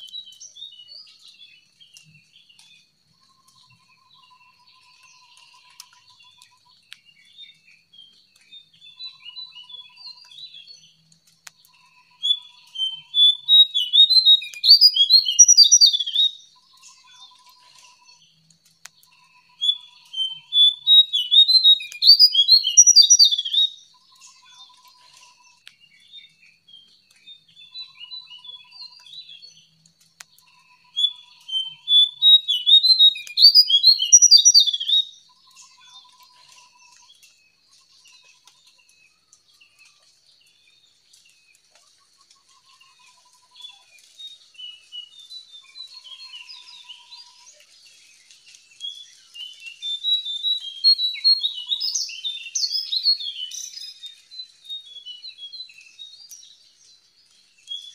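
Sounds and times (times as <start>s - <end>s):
songbird chattering: 11.5s - 18.2s, 18.8s - 25.5s, 30.4s - 37.1s.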